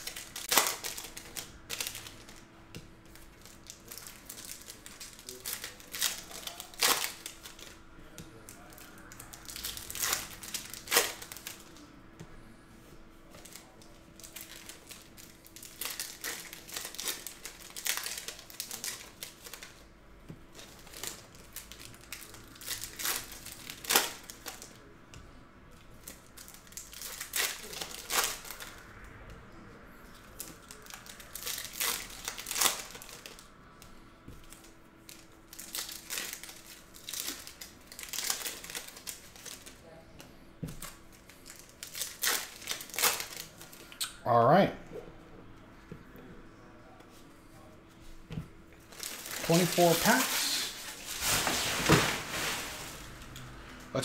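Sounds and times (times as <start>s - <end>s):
foil wrappers crinkling and tearing: 0.0s - 2.5s, 3.1s - 7.8s, 8.4s - 11.9s, 13.3s - 19.8s, 20.5s - 24.9s, 26.0s - 28.8s, 30.1s - 33.5s, 34.3s - 39.9s, 40.7s - 43.9s, 48.8s - 53.4s.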